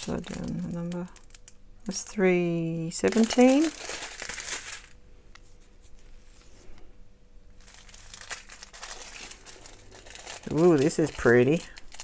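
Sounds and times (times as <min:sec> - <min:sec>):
plastic bags crinkling: 0:00.0 - 0:05.0, 0:07.6 - 0:12.0.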